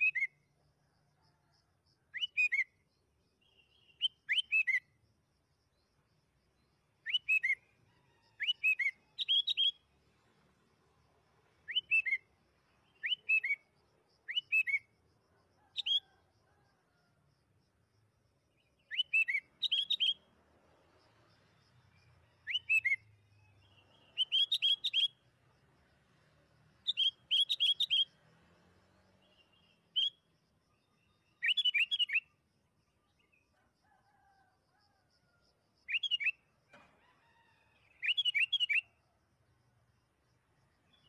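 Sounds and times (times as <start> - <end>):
bulbul singing: 8.4 - 9.9, 11.7 - 13.7, 18.8 - 20.2, 22.4 - 25.2, 26.9 - 28.2, 31.2 - 32.3.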